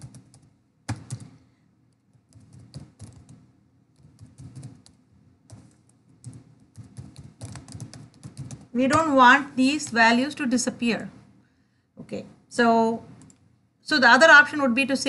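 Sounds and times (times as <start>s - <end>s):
computer keyboard typing: 0.0s - 9.1s, 13.2s - 13.4s.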